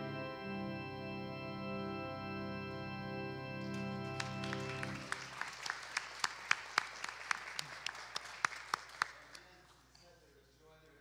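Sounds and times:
held instrumental chord: 0:00.0 - 0:05.4
sparse applause: 0:03.6 - 0:09.7.

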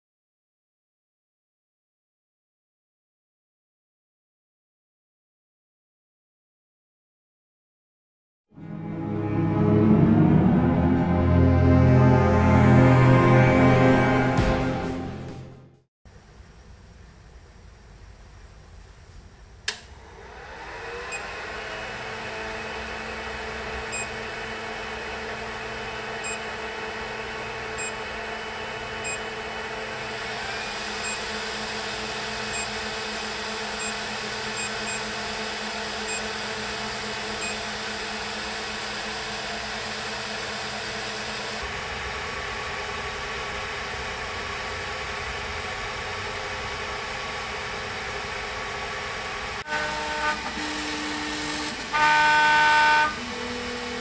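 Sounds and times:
cooling fans whirring: 0:16.1 - 0:54.0
power switch click: 0:19.6 - 0:19.9.

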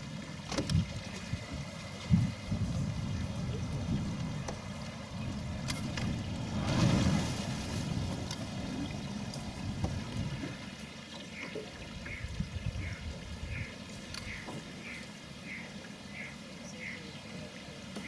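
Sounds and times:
wind buffeting microphone: 0:00.6 - 0:10.7, 0:12.1 - 0:13.7.

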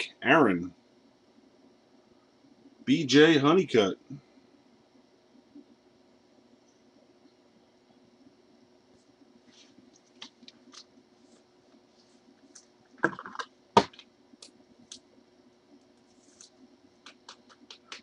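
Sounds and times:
trading cards clicking and tapping: 0:16.4 - 0:18.0.

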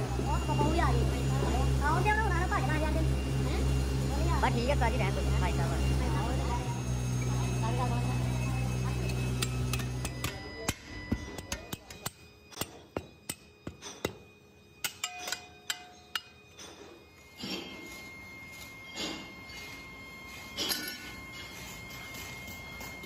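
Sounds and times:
low steady hum: 0:00.0 - 0:23.0.

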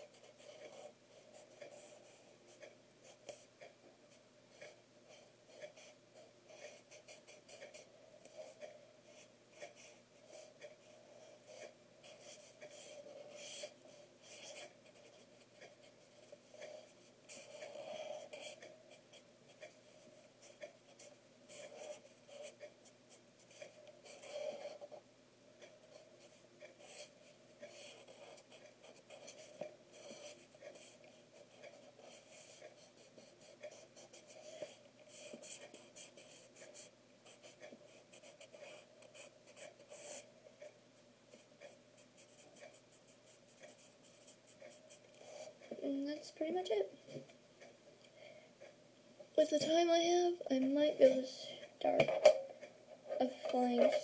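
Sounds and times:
felt-tip pen scratching paper: 0:05.5 - 0:19.8, 0:26.2 - 0:40.3.

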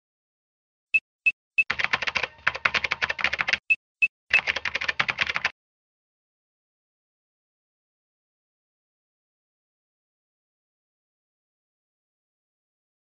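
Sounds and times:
keyboard typing: 0:01.6 - 0:05.5.

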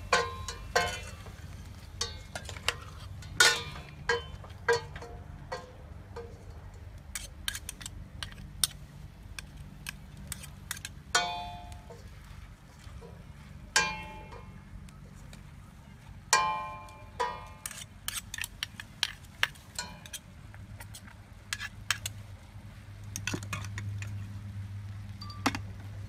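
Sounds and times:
metal ladle clinking on pot: 0:00.0 - 0:01.4, 0:02.0 - 0:06.4, 0:11.2 - 0:11.9, 0:18.6 - 0:20.2.

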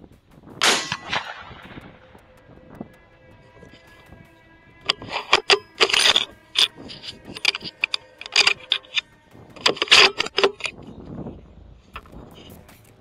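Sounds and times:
clicks and rattles: 0:04.9 - 0:10.8.

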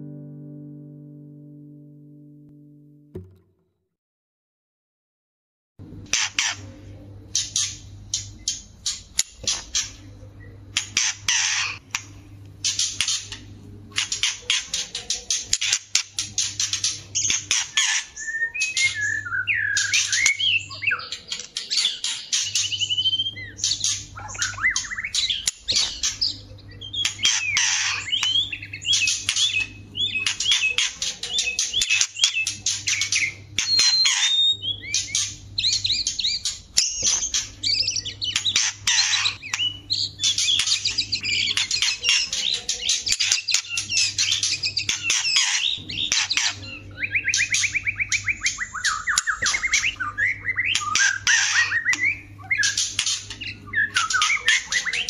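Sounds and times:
whistled bird song: 0:17.2 - 0:55.0.

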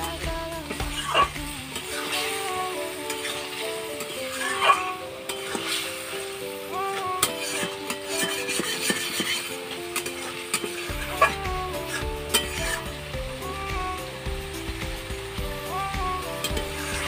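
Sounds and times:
bass line: 0:00.0 - 0:01.7, 0:10.9 - 0:17.0
background music with melody: 0:00.0 - 0:17.0
food sizzling: 0:00.0 - 0:17.0
metal spatula scraping a pan: 0:07.2 - 0:11.4.

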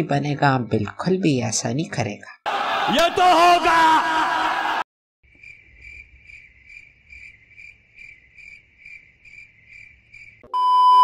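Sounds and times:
cricket trill: 0:05.3 - 0:10.5.

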